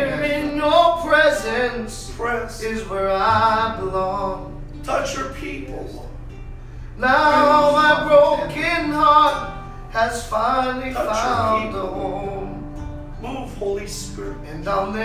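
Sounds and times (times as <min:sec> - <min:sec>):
men singing a worship song: 0:00.0 - 0:04.6, 0:07.0 - 0:12.6
instrumental accompaniment: 0:03.2 - 0:15.0.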